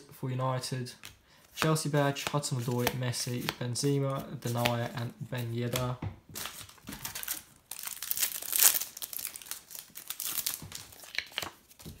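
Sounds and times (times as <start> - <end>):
plastic wrapper tearing and crinkling: 6.4 - 12.0.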